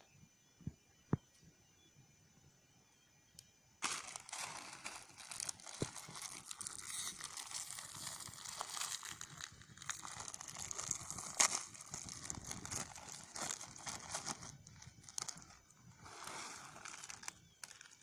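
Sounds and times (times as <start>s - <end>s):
plastic packet crinkling: 3.8s - 18.0s.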